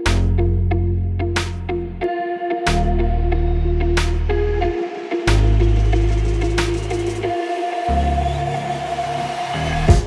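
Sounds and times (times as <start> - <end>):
synth bass line: 2.7 - 10.0.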